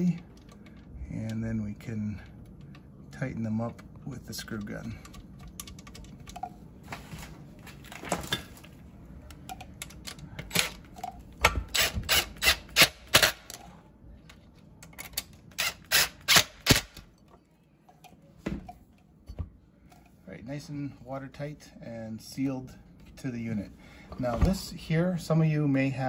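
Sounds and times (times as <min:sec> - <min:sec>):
impact driver bursts: 0:11.5 - 0:13.5, 0:15.6 - 0:17.0.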